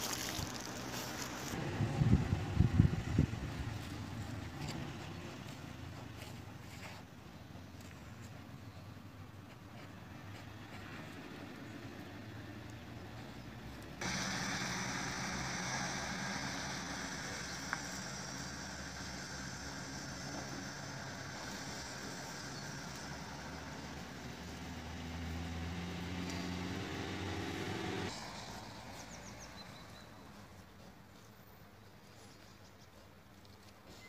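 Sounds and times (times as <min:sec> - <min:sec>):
vehicle engine running: 0:00.0 - 0:06.8, 0:10.5 - 0:30.4.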